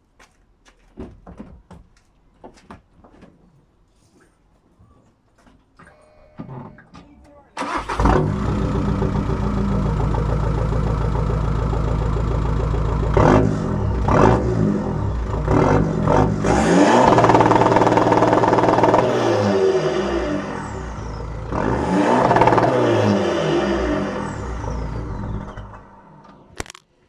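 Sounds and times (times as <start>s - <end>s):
car engine idling and revving: 7.6s - 26.4s.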